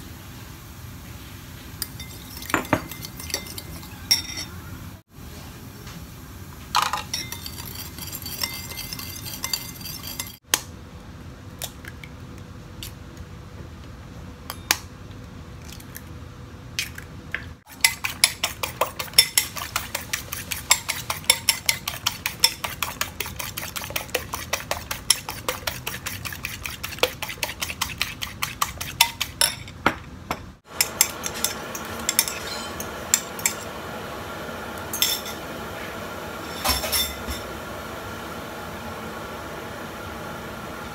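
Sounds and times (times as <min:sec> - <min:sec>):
spoon clinking in ceramic bowl: 0:01.8 - 0:04.6, 0:06.8 - 0:10.4, 0:17.7 - 0:33.6
eggs beaten against bowl: 0:17.7 - 0:29.7.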